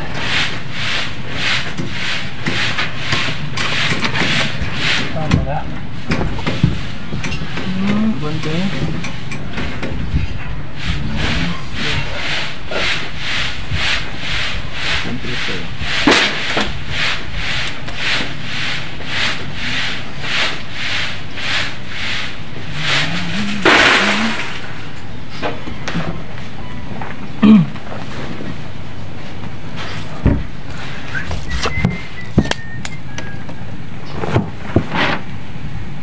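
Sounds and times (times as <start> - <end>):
handsaw rasping through wood: 0.0 - 5.2, 10.8 - 24.6
steady low rumble: 4.4 - 33.0.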